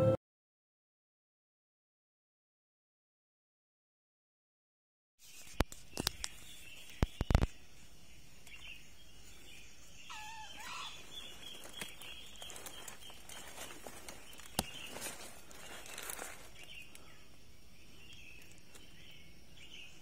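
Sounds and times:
high insect drone: 5.6s - 20.0s
wavering bird call: 10.1s - 11.9s.

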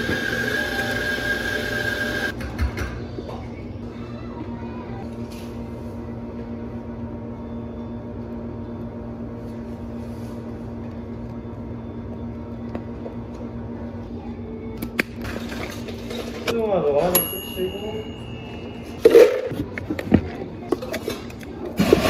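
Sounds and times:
machine hum: 0.0s - 2.4s.

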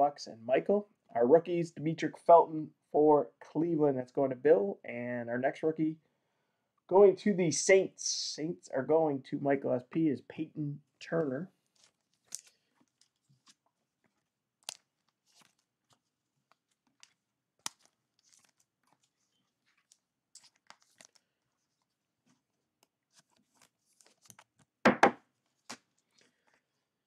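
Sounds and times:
plastic card sleeves crinkling: 11.1s - 26.8s
double knock: 24.9s - 25.2s.

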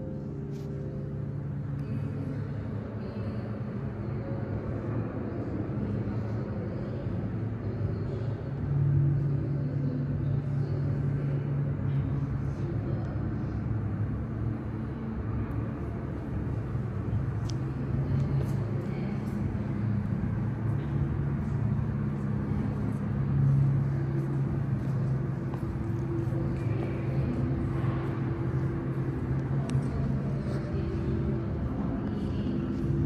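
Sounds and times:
low droning hum: 0.0s - 33.0s.

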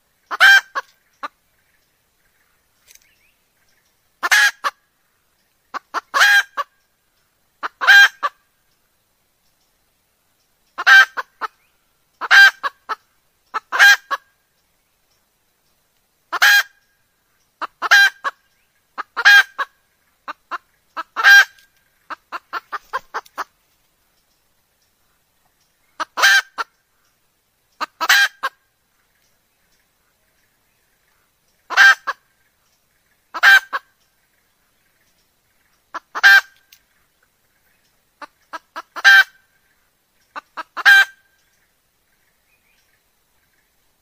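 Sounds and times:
hen calling: 0.2s - 1.4s, 3.6s - 8.6s, 10.7s - 14.4s, 16.3s - 23.6s, 25.8s - 29.1s, 31.1s - 34.8s, 35.6s - 41.7s.

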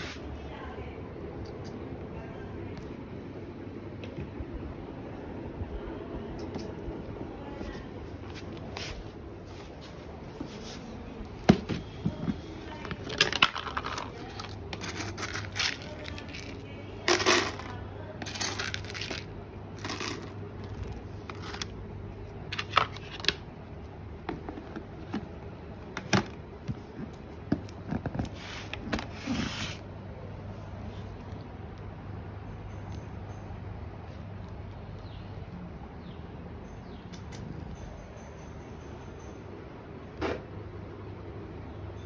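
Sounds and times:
plastic container being handled: 7.7s - 21.8s, 24.2s - 29.8s
kibble rattling into plastic bowl: 12.8s - 21.8s.

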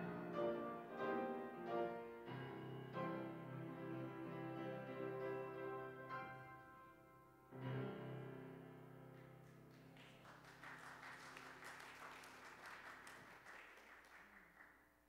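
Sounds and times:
keyboard chord: 0.0s - 9.2s
faint applause: 9.4s - 15.0s.

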